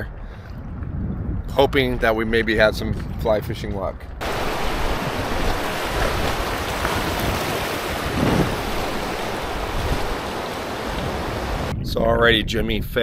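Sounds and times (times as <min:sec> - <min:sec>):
wind buffeting microphone: 0:00.0 - 0:13.0
river water rushing through rapids: 0:04.2 - 0:11.7.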